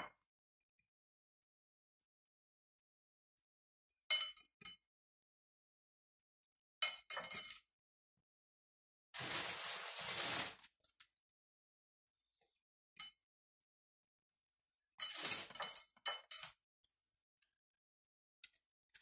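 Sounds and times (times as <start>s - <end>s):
crockery clinking: 4.1s - 4.8s, 6.8s - 7.6s, 15.0s - 16.6s.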